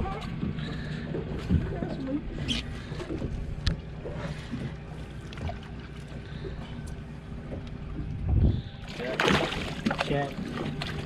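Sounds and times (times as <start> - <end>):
boat engine idling: 0.0 - 11.0
wind on microphone: 8.1 - 8.8.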